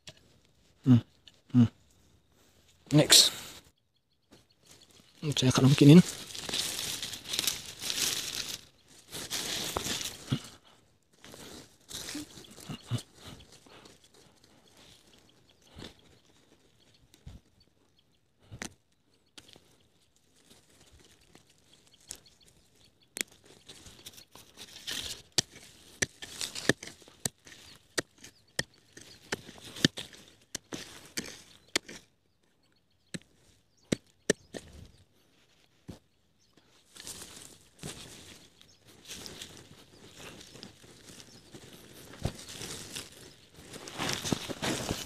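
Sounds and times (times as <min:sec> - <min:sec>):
vines crunching and snapping: 0:05.6 - 0:10.5, 0:24.5 - 0:32.1, 0:39.0 - 0:45.0.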